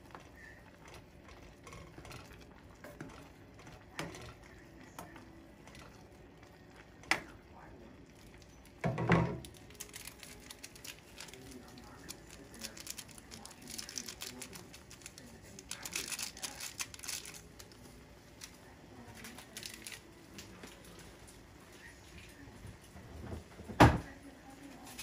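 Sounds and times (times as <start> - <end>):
water boiling and bubbling: 0.0 - 25.0
sachet crinkling: 9.4 - 20.9.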